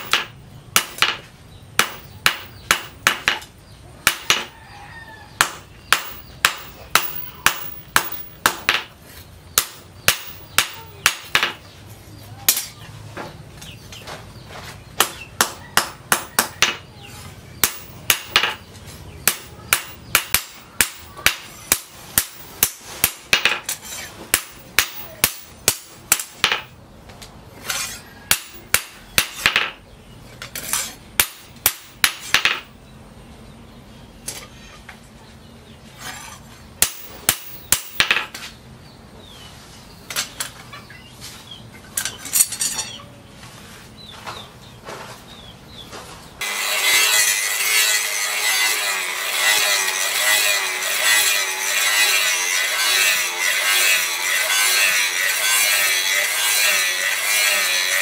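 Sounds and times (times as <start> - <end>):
hammer striking steel on anvil: 0.0 - 4.6, 5.4 - 8.9, 9.5 - 11.7, 17.6 - 26.7, 36.8 - 38.4.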